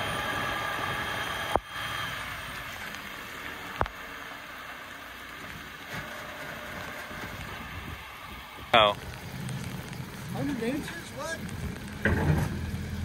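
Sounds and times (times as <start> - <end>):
truck engine and hydraulics: 0.0 - 13.0
rain pattering: 1.6 - 13.0.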